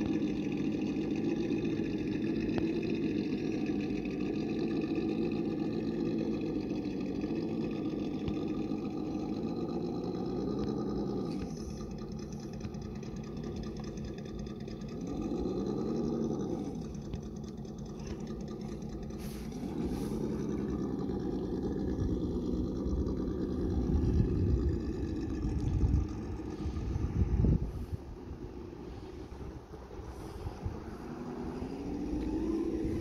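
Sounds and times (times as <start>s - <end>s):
electric motor and gears whining: 0.0s - 33.0s
wind rumbling on microphone: 11.2s - 33.0s.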